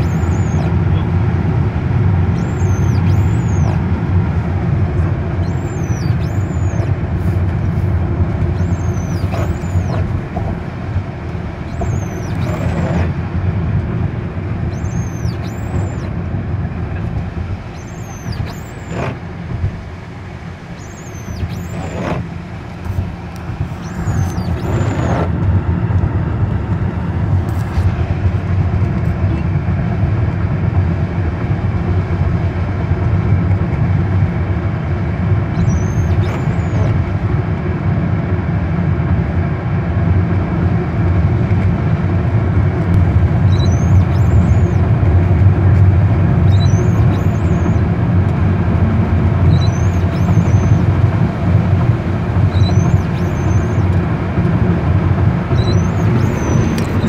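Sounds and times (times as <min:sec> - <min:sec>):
car engine accelerating: 0:00.0 - 0:30.4, 0:42.8 - 0:57.0
road noise inside car: 0:00.0 - 0:57.0.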